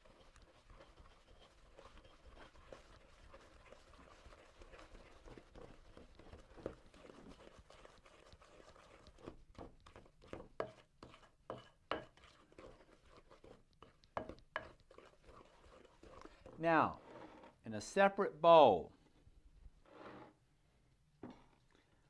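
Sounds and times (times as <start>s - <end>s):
spoon scraping and knocking in bowl: 0.0s - 17.6s.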